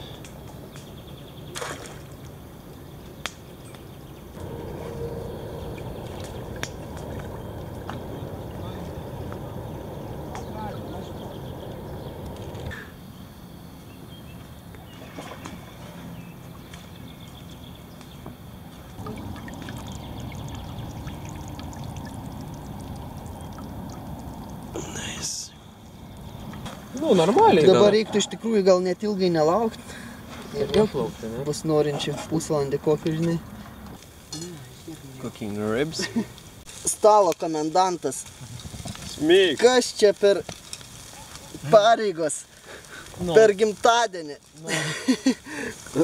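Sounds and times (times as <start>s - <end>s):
quiet lakeside ambience: 0.0s - 46.0s
water washing against boat: 4.4s - 12.7s, 19.0s - 24.8s
small scattered ticks: 33.1s - 46.0s.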